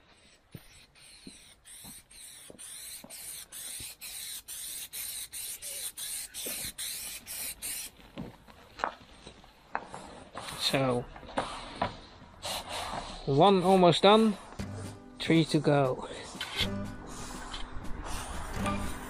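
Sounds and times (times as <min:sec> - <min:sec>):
rhythmic hissing strokes: 0:00.2 - 0:08.0, 0:16.0 - 0:19.0.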